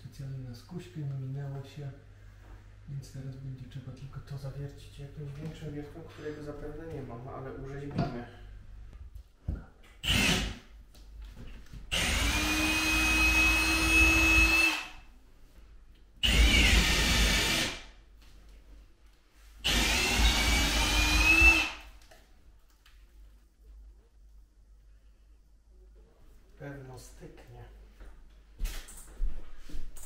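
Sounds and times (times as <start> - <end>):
cordless drill drilling wood: 10.0 - 10.6, 11.9 - 14.9, 16.2 - 17.8, 19.6 - 21.9.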